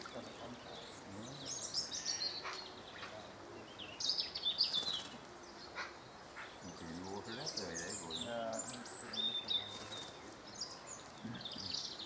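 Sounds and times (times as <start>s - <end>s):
bird splashing water: 0.0s - 0.8s
songbirds chirping and singing: 0.0s - 12.0s.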